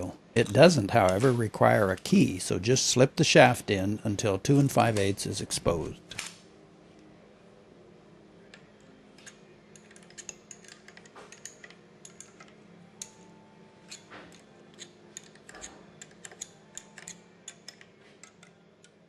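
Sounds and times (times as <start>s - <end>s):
wrench clicking on bolts: 9.2s - 13.2s, 13.9s - 19.0s.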